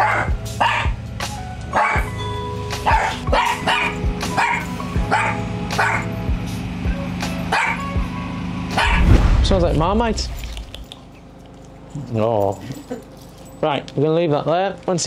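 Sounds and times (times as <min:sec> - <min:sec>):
small dog barking: 0:00.0 - 0:01.0, 0:01.8 - 0:02.1, 0:02.8 - 0:06.1, 0:07.5 - 0:07.8, 0:08.8 - 0:09.0
background music with held notes: 0:00.0 - 0:08.8.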